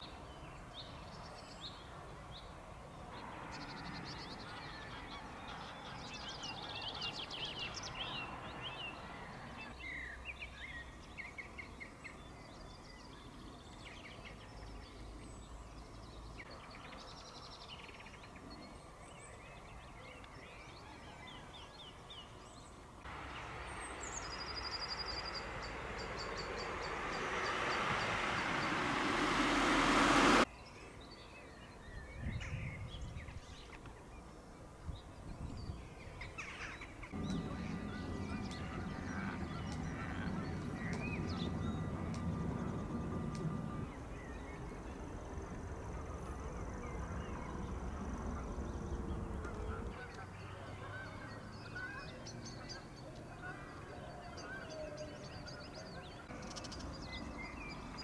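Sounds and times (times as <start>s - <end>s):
songbirds chirping and trilling: 0.0s - 29.0s, 30.6s - 58.0s
rushing noise: 23.1s - 30.5s, 37.1s - 46.2s.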